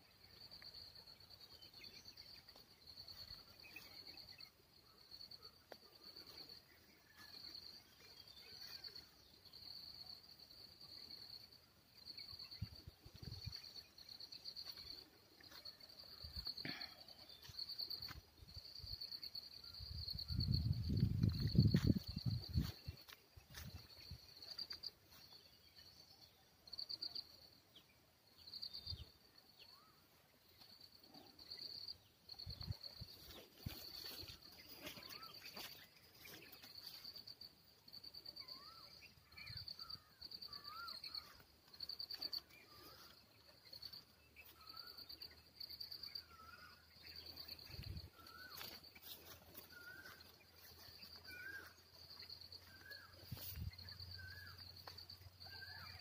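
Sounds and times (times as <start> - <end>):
insects chirring: 0.0 - 56.0
bird calling: 51.2 - 51.9.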